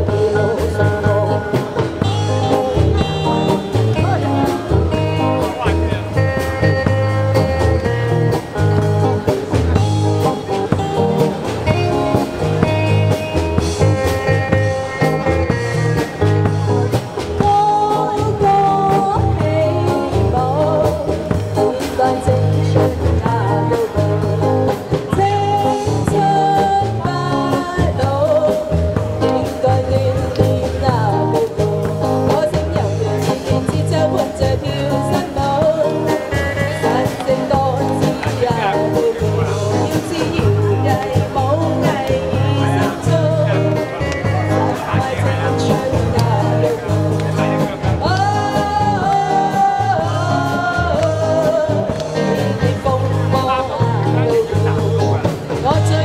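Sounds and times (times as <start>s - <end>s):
two women singing: 0.0s - 1.7s, 17.4s - 44.0s, 44.8s - 56.0s
bass beat: 0.0s - 56.0s
live band music: 0.0s - 56.0s.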